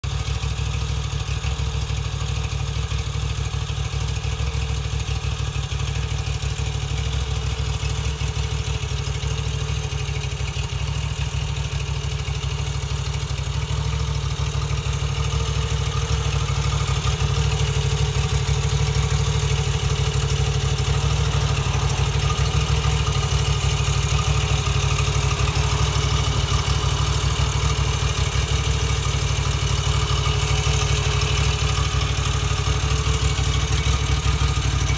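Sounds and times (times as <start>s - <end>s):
motorcycle engine idling: 0.0s - 34.9s.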